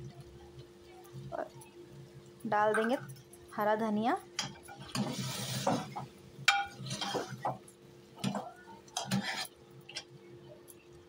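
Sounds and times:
ladle scraping metal pot: 4.4 - 7.6, 8.2 - 9.6.

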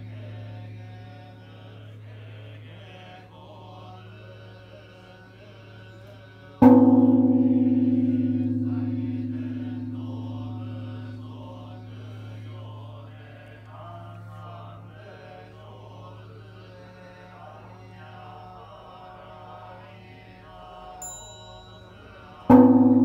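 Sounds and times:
chanting: 0.0 - 23.0
large bronze bell tolling: 6.6 - 13.7, 21.0 - 23.0.

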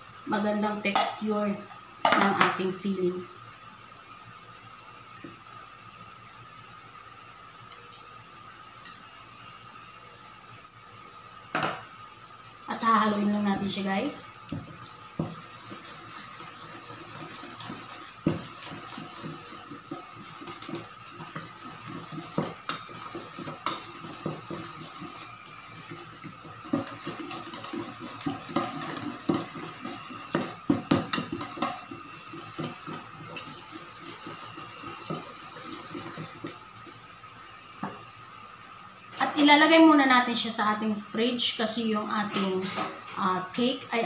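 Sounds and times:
whisk clicking against metal bowl: 15.2 - 36.5.

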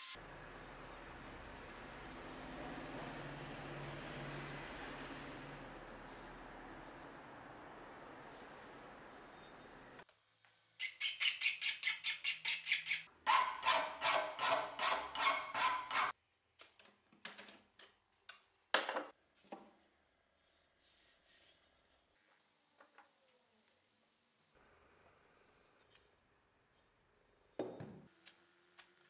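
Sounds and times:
hand file scraping steel: 10.8 - 16.2.

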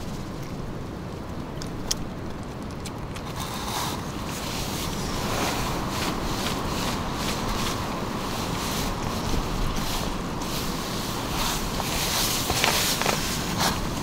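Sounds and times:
camp stove burner hissing: 3.2 - 14.0.

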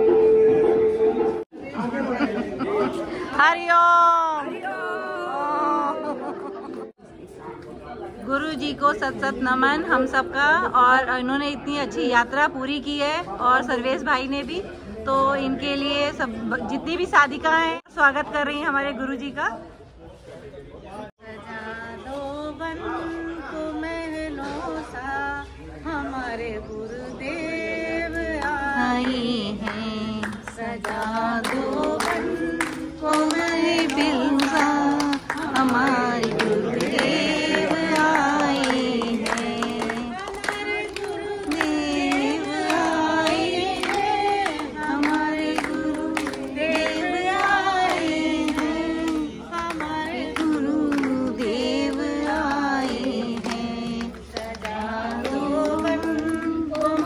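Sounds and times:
women singing in unison: 3.3 - 6.6, 21.2 - 57.0
clapping in time: 28.4 - 57.0.

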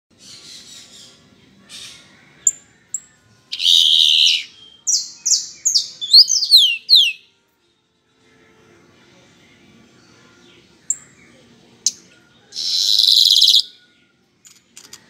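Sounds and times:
blackbird singing: 0.1 - 7.3, 10.0 - 14.2.

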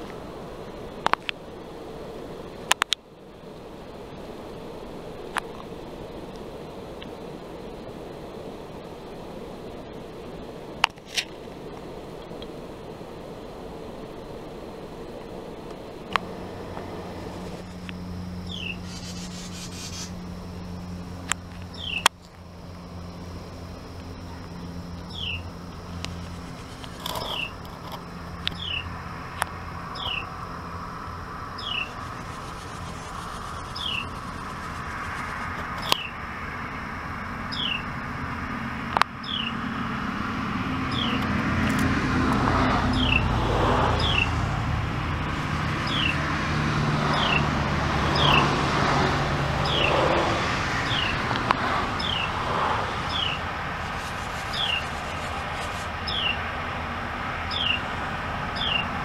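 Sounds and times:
low steady hum: 0.0 - 59.0
bird chirping: 17.2 - 20.3, 21.6 - 22.1, 24.2 - 27.6, 28.5 - 28.9, 29.9 - 30.3, 31.5 - 34.6, 35.8 - 36.2, 37.5 - 37.9, 39.2 - 39.6, 40.9 - 41.2, 42.9 - 43.3, 44.0 - 44.4, 45.7 - 46.2, 47.1 - 47.4, 49.6 - 49.9, 50.8 - 51.2, 52.0 - 52.3, 53.0 - 56.4, 57.5 - 57.9, 58.6 - 58.9
nestlings raspy chatter: 18.5 - 20.3, 31.6 - 36.1, 45.3 - 46.3, 49.6 - 56.5.

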